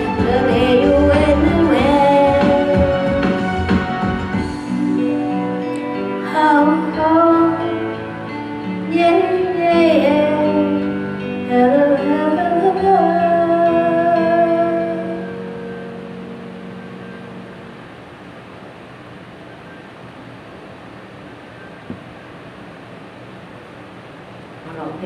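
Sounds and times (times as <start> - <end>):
woman singing pop ballad: 0.0 - 3.6, 6.2 - 15.4
recorded backing track: 0.0 - 22.9.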